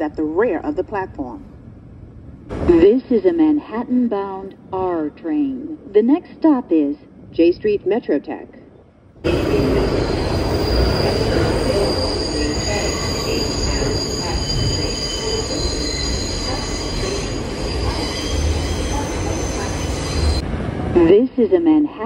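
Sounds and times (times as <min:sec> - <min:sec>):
subway train rumble: 0:00.0 - 0:22.0
wheels squealing on rails: 0:09.3 - 0:20.4.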